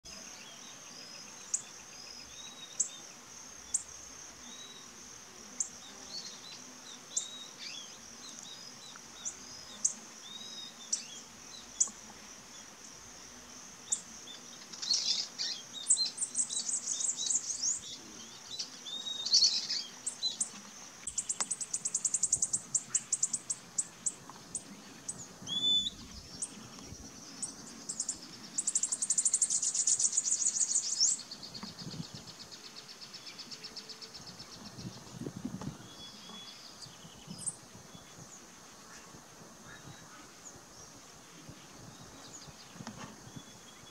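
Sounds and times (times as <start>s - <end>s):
high insect buzz: 0.0s - 43.9s
bird trilling songs: 14.6s - 38.3s.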